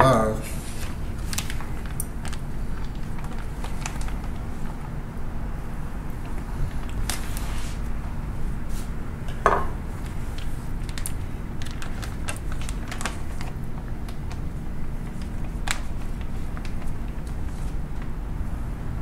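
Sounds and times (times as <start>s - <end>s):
plastic bag crinkling: 0.7s - 4.9s, 10.0s - 18.1s.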